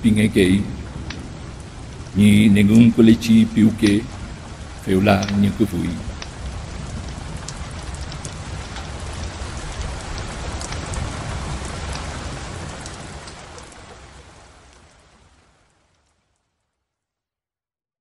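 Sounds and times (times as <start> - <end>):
low rumble: 0.0 - 12.0
raindrop ticks: 0.0 - 16.6
steady rain: 0.0 - 17.1.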